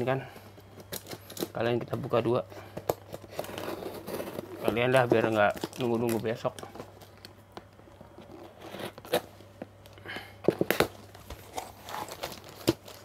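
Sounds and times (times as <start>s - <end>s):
paper rustling and tearing: 11.3s - 13.0s.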